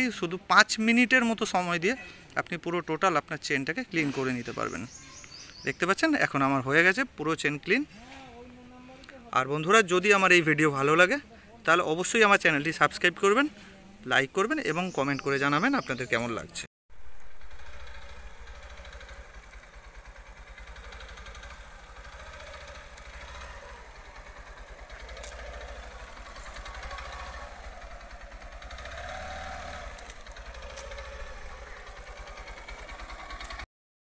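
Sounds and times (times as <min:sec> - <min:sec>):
motorcycle engine running: 0:17.0 - 0:33.7.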